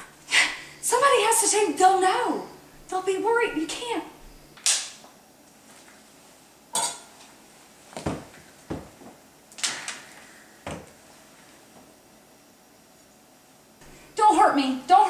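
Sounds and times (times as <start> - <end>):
kitchenware clinking and knocking: 6.7 - 7.2.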